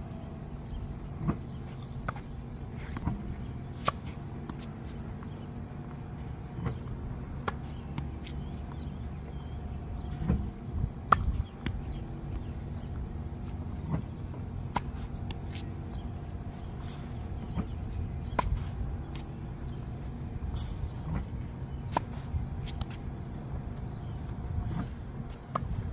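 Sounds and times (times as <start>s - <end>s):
steady low hum: 0.0s - 25.9s
racket striking tennis ball: 10.2s - 12.0s.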